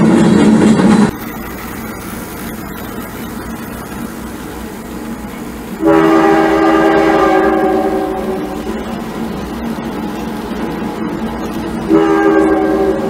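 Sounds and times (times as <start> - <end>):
model train wheels rumbling: 0.0 - 13.0
train horn blast: 5.8 - 8.8, 11.9 - 13.0.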